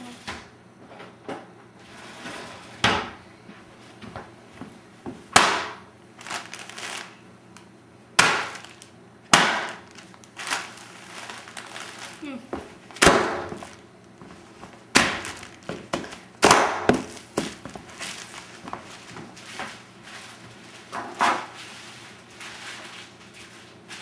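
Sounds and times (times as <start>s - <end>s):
plastic air pillows popping: 4.6s - 19.8s
plastic crinkling: 6.1s - 24.0s.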